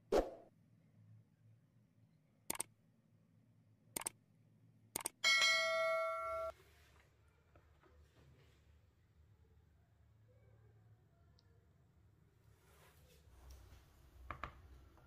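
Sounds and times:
notification bell ringing: 5.2 - 6.5.

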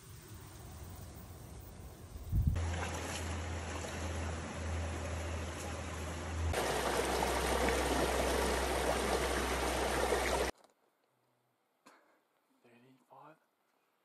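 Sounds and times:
mountain stream rushing: 2.6 - 10.5.

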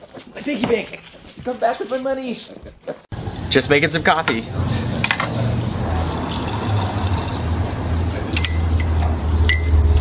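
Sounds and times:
liquid filling a cup: 6.1 - 7.6.

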